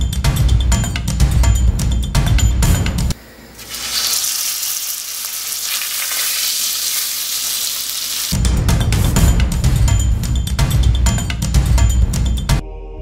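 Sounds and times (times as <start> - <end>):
steak sizzling in a frying pan: 3.6 - 8.4.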